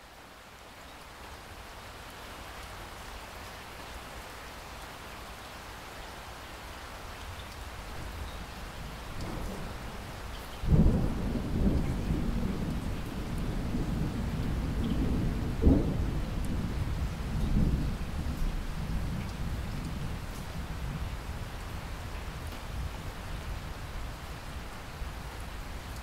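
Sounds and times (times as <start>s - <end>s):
heavy rain splashing: 0.0s - 26.0s
low rumble of thunder: 7.9s - 26.0s.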